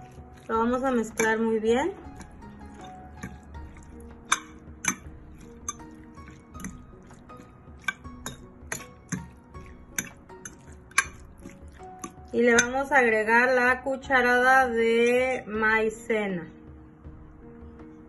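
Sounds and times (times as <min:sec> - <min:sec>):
fork clinking on glass dish: 0:02.7 - 0:07.2, 0:10.0 - 0:12.7.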